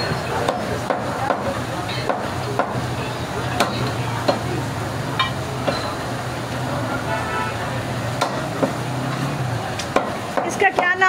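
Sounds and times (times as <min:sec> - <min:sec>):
cleaver chopping meat on wood: 0:00.4 - 0:02.8, 0:03.6 - 0:04.5, 0:08.2 - 0:08.8, 0:09.8 - 0:10.9.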